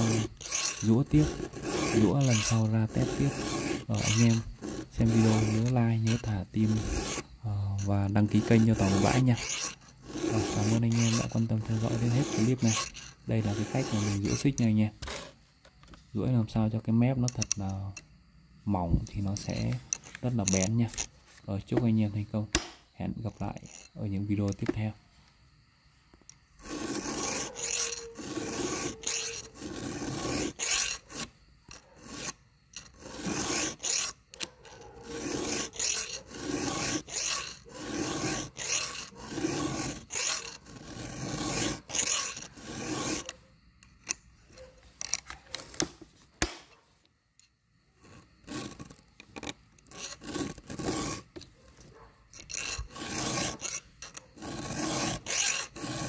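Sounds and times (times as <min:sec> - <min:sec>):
file rasping on chainsaw chain: 0:00.0 - 0:15.4, 0:19.2 - 0:21.1, 0:23.3 - 0:24.7, 0:26.6 - 0:43.4, 0:48.0 - 0:56.0.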